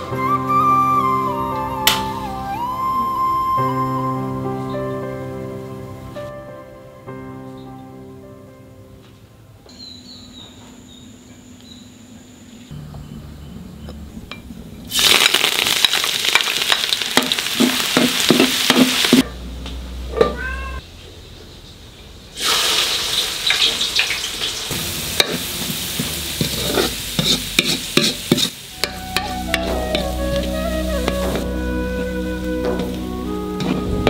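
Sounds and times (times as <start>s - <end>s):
food sizzling in hot oil: 14.9s - 19.2s, 22.4s - 31.5s
stirring in a pan: 25.2s - 31.4s.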